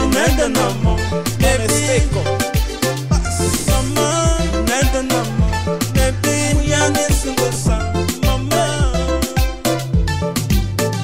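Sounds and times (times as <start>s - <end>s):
bassline: 0.0s - 11.0s
keyboard-like notes: 0.0s - 11.0s
drum beat: 0.1s - 6.3s.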